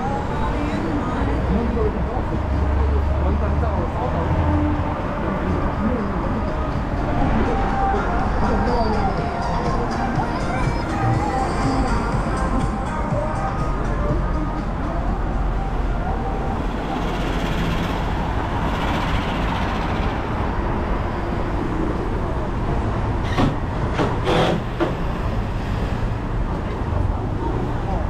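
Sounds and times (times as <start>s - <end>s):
low rumble of passing vehicles: 0.0s - 28.0s.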